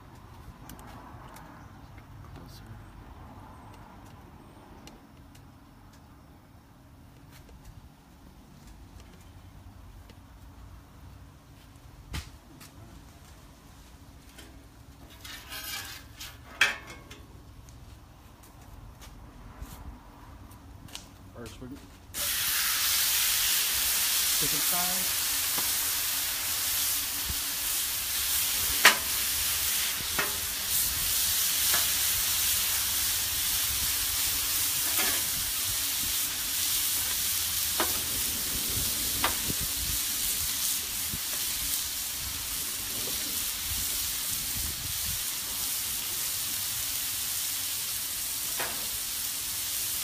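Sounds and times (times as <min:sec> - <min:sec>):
sharp pops of frying: 0:12.1 - 0:12.4, 0:22.2 - 0:33.3, 0:33.9 - 0:38.3, 0:39.1 - 0:43.7, 0:47.9 - 0:50.0
chicken sizzling on a griddle: 0:13.5 - 0:16.9, 0:22.1 - 0:50.0.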